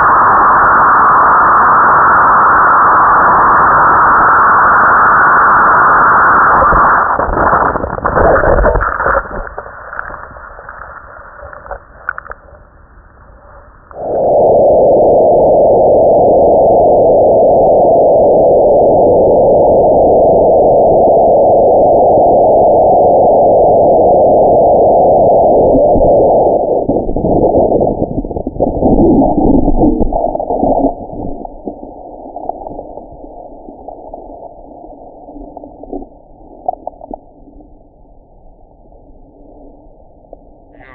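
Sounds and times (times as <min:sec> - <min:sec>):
wind rushing over microphone: 0:13.9 - 0:34.3.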